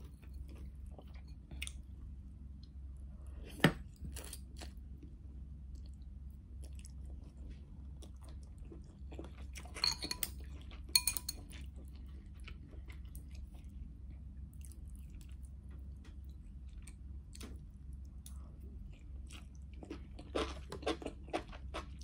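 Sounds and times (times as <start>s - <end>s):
low steady hum: 0.0s - 22.0s
chewing and mouth clicks: 0.1s - 1.8s, 14.5s - 22.0s
utensil clinking on glass bowl: 9.8s - 11.4s.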